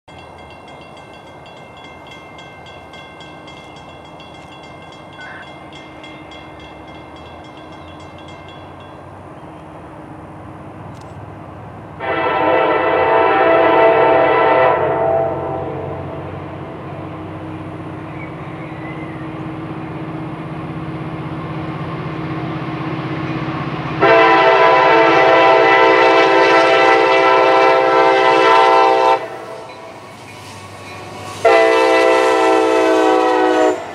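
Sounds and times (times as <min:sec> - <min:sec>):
locomotive engine rumble: 0:00.1 - 0:33.9
locomotive horn blasts: 0:12.0 - 0:16.2, 0:24.0 - 0:29.9, 0:31.3 - 0:33.9.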